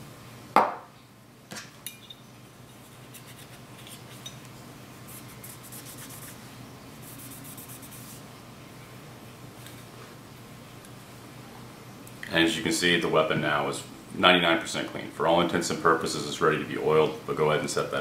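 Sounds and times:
cloth patch wiping metal: 5.1s - 6.4s, 7.0s - 8.3s.

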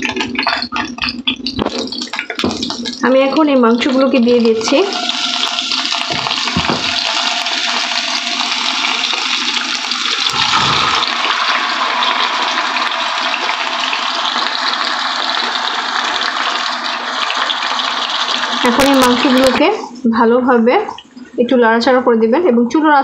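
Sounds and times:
chicken sizzling in hot oil: 3.8s - 19.6s
pieces thudding into pan: 6.1s - 7.1s.

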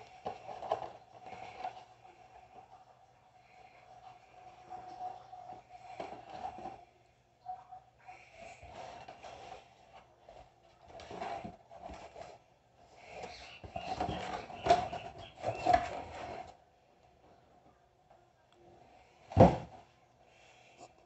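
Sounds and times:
cardboard scraping and rustling: 8.7s - 12.4s, 13.2s - 16.6s
box knocks: 19.3s - 19.8s.

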